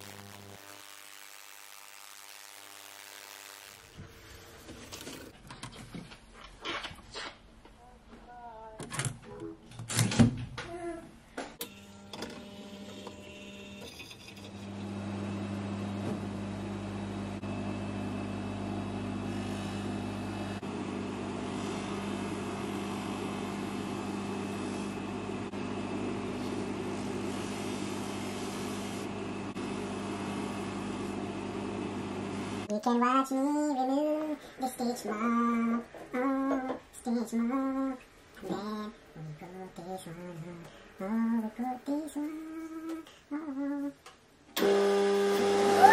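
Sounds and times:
polishing motor humming: 0.0 - 3.9, 11.7 - 32.7.

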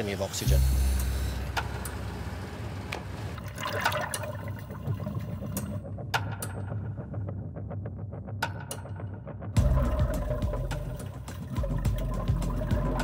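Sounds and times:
low engine drone: 0.0 - 3.4, 9.6 - 13.0
water splashing and rushing: 9.6 - 13.0.

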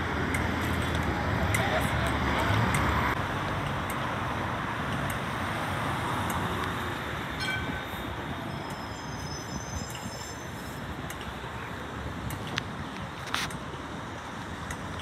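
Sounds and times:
street traffic noise: 0.0 - 15.0
tram rolling to a stop: 6.2 - 12.4
high-pitched tram squeal: 7.3 - 10.9.

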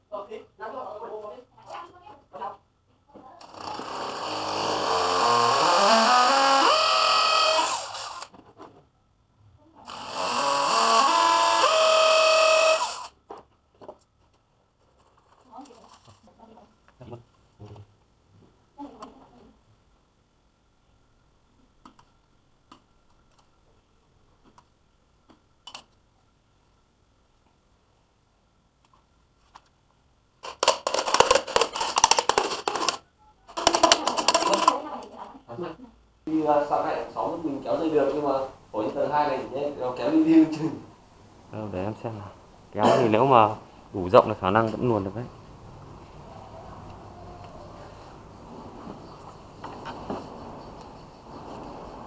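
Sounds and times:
cordless drill motor: 3.4 - 8.3, 9.9 - 13.2.

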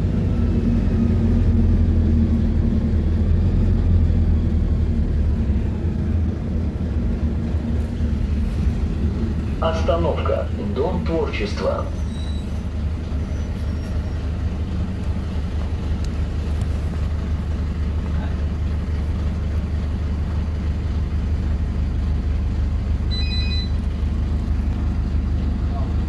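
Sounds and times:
bus engine droning: 0.0 - 26.0
high electronic beep tones: 23.1 - 23.8.

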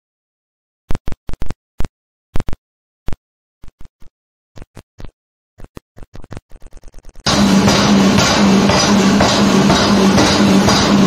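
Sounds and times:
sharp impact hits: 7.3 - 11.0.

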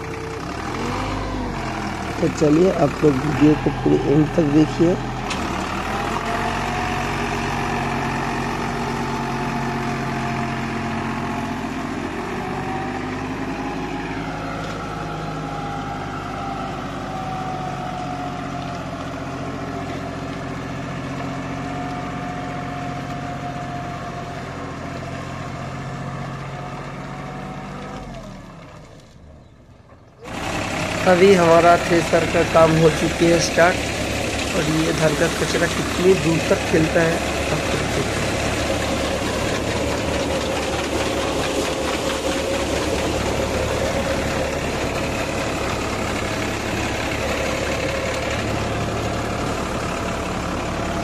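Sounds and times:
tractor diesel engine running: 0.0 - 51.0
thresher drum humming: 30.3 - 51.0.

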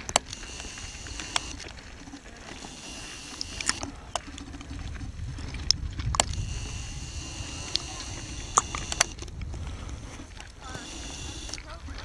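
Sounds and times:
short sharp clicks: 0.0 - 1.6
wind rumbling on microphone: 0.0 - 12.0.

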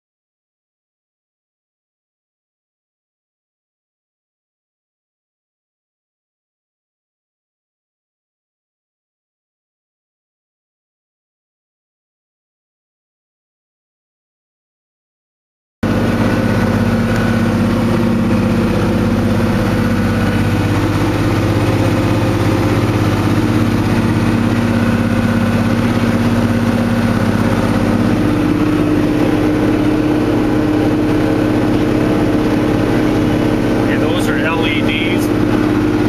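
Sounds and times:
tractor diesel engine running: 15.8 - 36.0.

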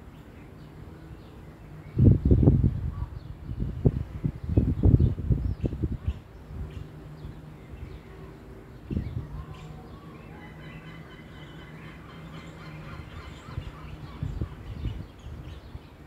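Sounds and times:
wind buffeting microphone: 0.7 - 16.0.

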